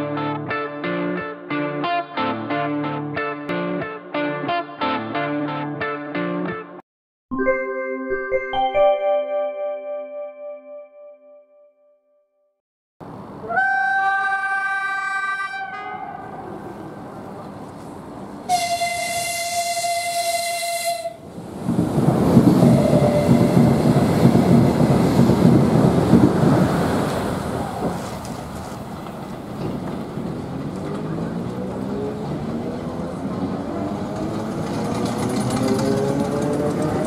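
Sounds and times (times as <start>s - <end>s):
train rushing past: 13.0s - 37.0s
train horn blasts: 13.4s - 16.5s, 18.5s - 21.3s, 22.7s - 23.7s.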